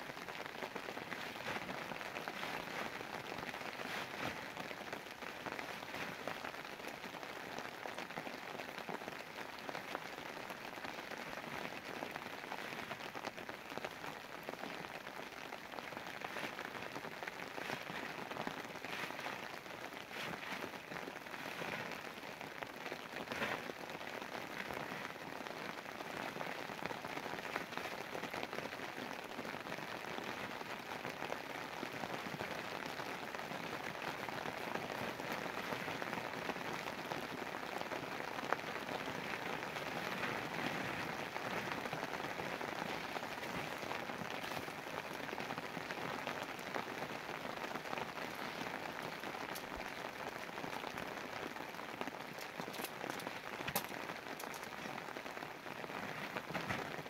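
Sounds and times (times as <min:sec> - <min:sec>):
rain falling on a tarp: 0:00.0 - 0:57.0.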